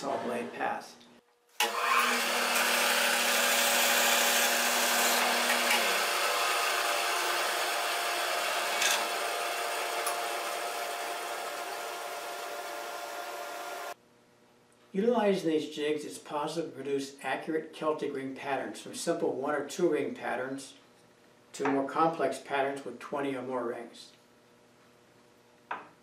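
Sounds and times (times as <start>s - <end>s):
bandsaw sawing through wood: 1.6s - 13.1s.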